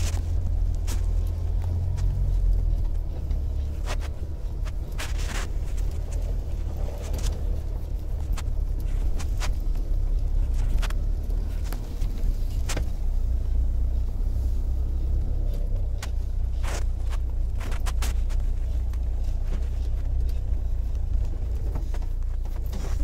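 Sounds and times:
sharp clicks and knocks: 0.0 - 13.4
car engine and road rumble: 0.0 - 23.0.

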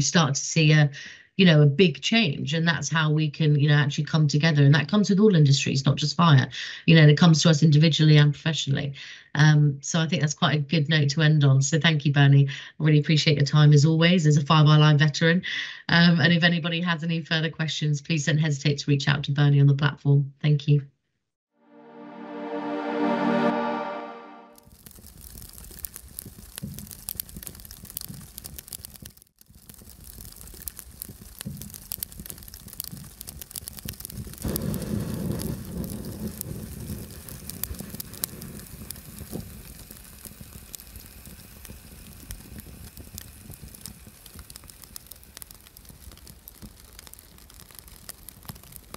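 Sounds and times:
fire crackling and popping: 24.6 - 48.9
steady hiss: 33.8 - 46.8.

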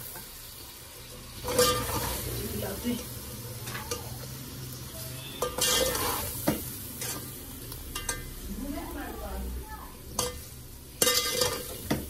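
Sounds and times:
food sizzling in oil: 0.0 - 12.0
metal spoon scraping metal pot: 5.2 - 6.4, 11.0 - 11.8.

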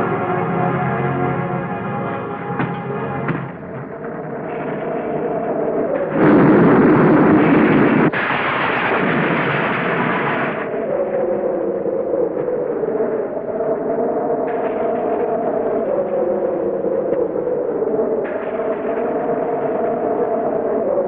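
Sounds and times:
droning music score: 0.0 - 8.3
thunderclap crash: 2.6 - 11.3.

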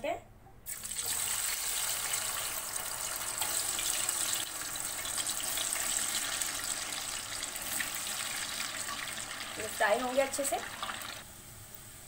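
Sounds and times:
fries sizzling in hot oil: 0.7 - 12.0.

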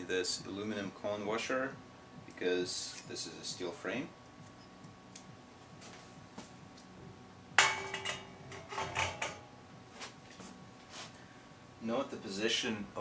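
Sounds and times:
metallic clank on bicycle frame: 7.6 - 9.4.

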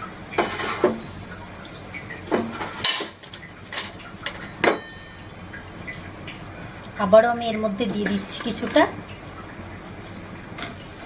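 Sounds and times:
frying oil hissing: 0.0 - 11.0.

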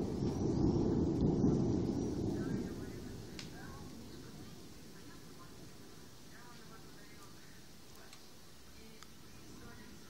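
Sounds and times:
rolling thunder: 0.0 - 7.9.

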